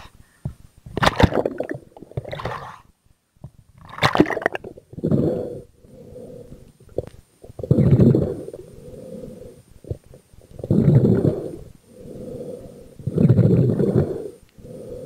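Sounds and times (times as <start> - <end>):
bubbles: 1.0 - 2.8, 3.8 - 5.3.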